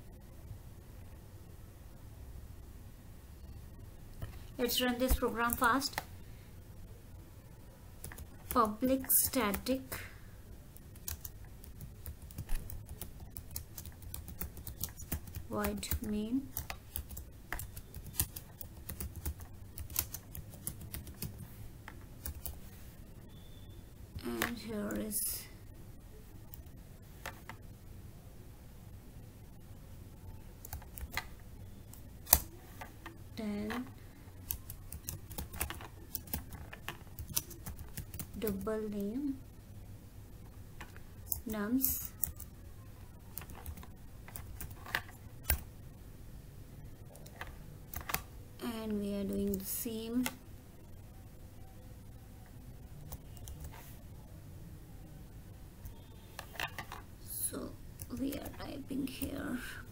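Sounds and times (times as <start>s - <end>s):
keyboard typing clicks: 10.8s - 22.6s, 30.6s - 32.5s, 33.7s - 38.6s, 53.1s - 53.9s.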